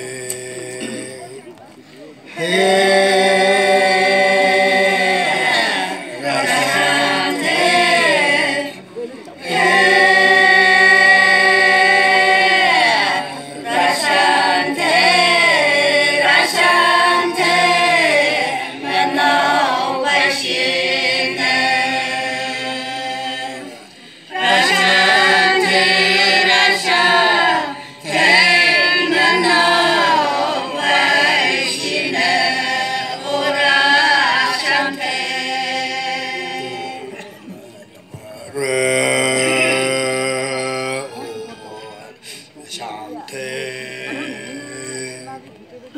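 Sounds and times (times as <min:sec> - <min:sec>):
women singing unaccompanied: 0:09.4 - 0:23.7, 0:24.3 - 0:37.2.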